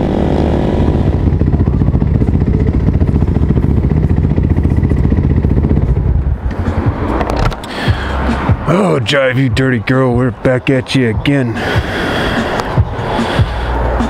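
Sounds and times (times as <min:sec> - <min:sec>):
motorcycle engine at low revs: 0:00.0 - 0:07.6.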